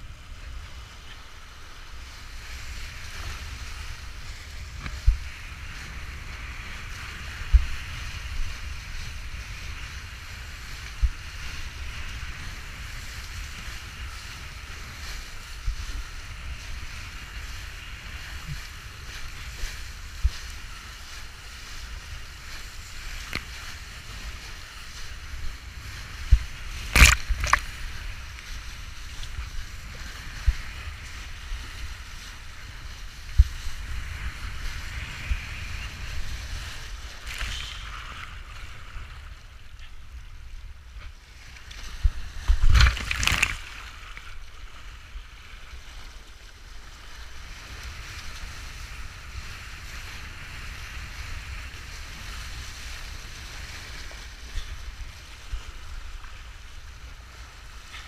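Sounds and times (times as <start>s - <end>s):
wind buffeting microphone: 0.0s - 58.0s
spray and rushing water: 0.2s - 38.1s
board thumping on chop: 27.0s - 27.6s.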